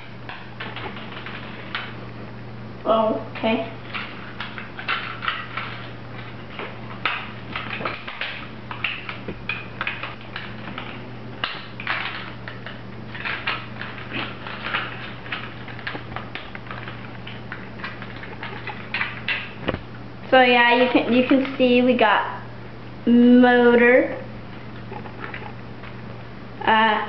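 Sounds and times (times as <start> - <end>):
steady low hum: 0.0 - 27.0
plastic parts clicking and rattling: 3.8 - 19.9.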